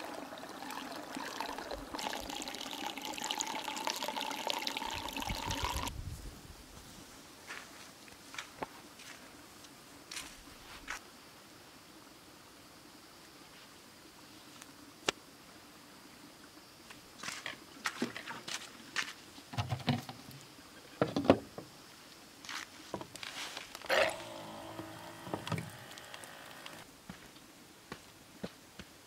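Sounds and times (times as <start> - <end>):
dispenser pump whirring: 23.8 - 26.8.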